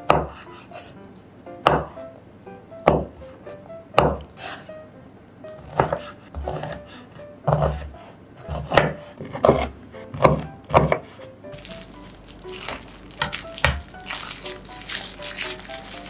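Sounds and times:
knife hitting cutting board: 5.6 - 6.8, 7.5 - 7.9, 8.5 - 11.1.

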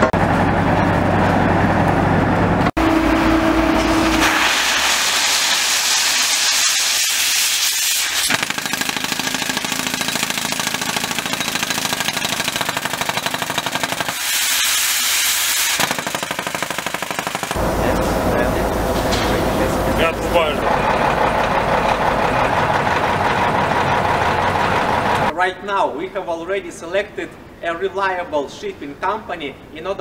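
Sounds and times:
pneumatic hammer drilling: 3.8 - 17.6
compressed air hissing: 14.1 - 15.8.

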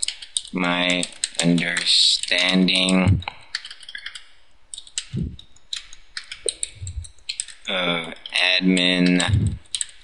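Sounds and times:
person speaking: 0.0 - 3.6, 5.0 - 5.4, 6.4 - 9.8
computer keyboard typing: 0.0 - 10.0.

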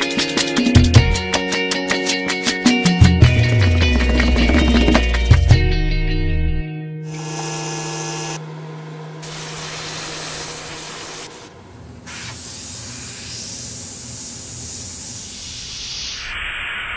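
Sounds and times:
airbrush spraying hiss: 12.0 - 16.2.

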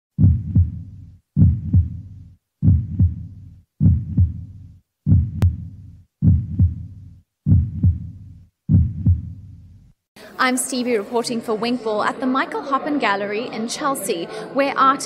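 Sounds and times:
heartbeat double thump: 0.1 - 9.7.

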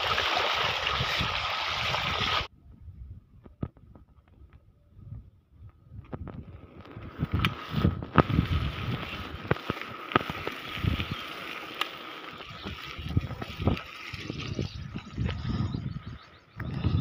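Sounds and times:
wind buffeting microphone: 0.8 - 11.6, 12.3 - 17.0
bike clicks and knocks: 6.0 - 15.4
bicycle tyres hissing on wet road: 7.1 - 14.7.

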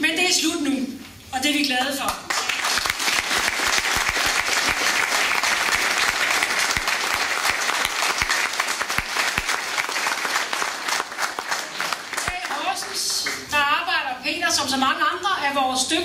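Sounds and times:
audience applauding: 2.3 - 13.5.

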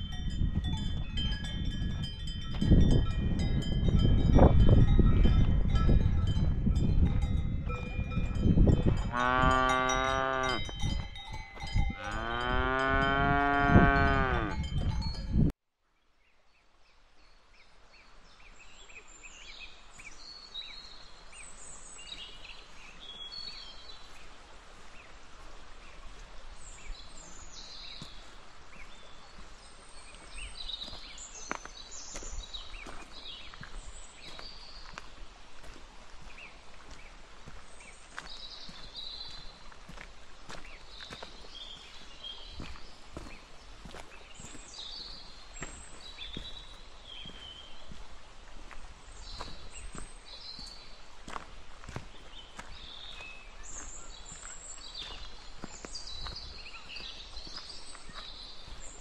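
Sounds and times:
cowbells ringing: 0.0 - 15.5
cow mooing: 9.1 - 10.7, 11.9 - 14.7
small birds chirping: 25.8 - 35.2, 36.2 - 39.7, 40.5 - 48.1, 48.7 - 59.0.

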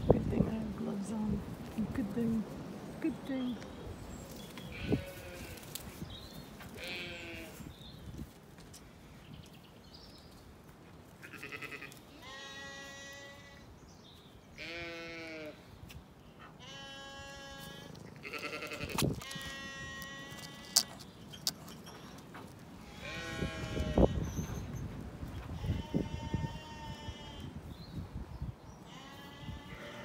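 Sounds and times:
sheep bleating: 6.8 - 7.6, 11.2 - 13.6, 14.6 - 15.6, 16.6 - 20.8, 28.9 - 30.0.

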